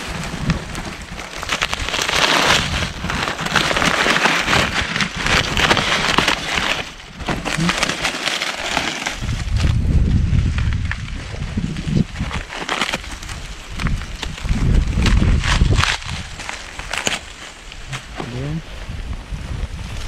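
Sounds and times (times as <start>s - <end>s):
dry corn husks crackling: 0.0s - 20.0s
low rumble: 9.2s - 12.5s.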